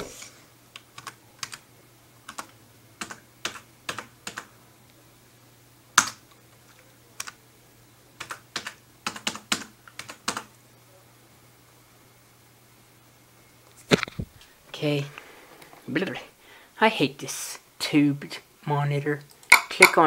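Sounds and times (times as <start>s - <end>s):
typing on computer keyboard: 0.8s - 1.6s, 2.3s - 4.5s, 8.2s - 10.5s.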